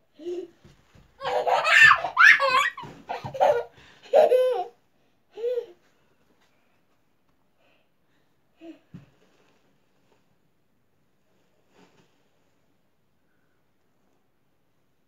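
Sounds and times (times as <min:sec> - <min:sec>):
child laughing: 0:01.2 - 0:04.8.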